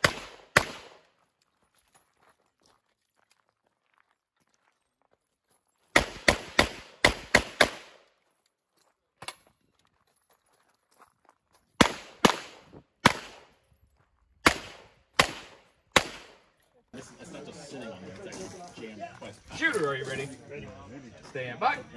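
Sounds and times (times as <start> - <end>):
handgun shots: 0.0 - 1.0, 6.0 - 8.0, 11.8 - 13.5, 14.4 - 16.4.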